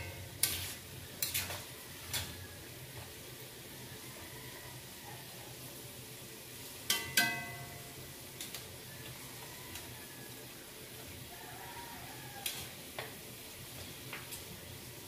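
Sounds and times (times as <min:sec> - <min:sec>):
metal tongs striking a wok: 0:00.0 - 0:00.6, 0:01.2 - 0:02.4, 0:06.8 - 0:08.0
pork rinds sizzling in oil: 0:00.0 - 0:15.0.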